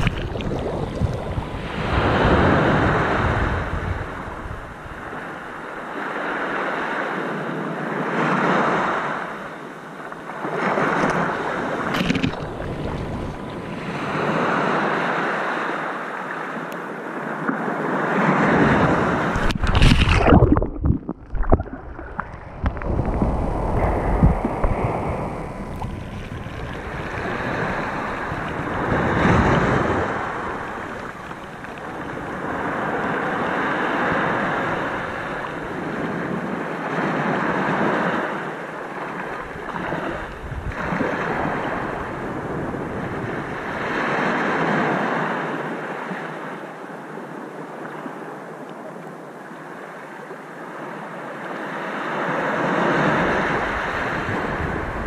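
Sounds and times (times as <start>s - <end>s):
wind buffeting microphone: 0.0s - 5.3s, 18.5s - 36.5s, 53.1s - 55.0s
sea waves washing onto shore: 0.0s - 48.5s, 49.6s - 55.0s.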